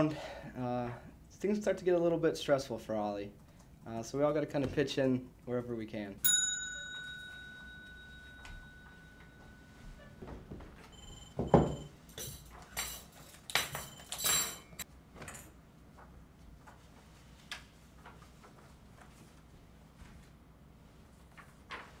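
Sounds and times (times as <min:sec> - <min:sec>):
objects clattering on desk: 0:10.2 - 0:15.6.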